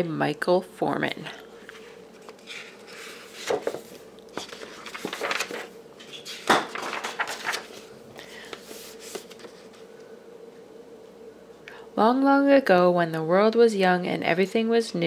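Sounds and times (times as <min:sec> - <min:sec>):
book pages flipping: 0:01.6 - 0:09.8.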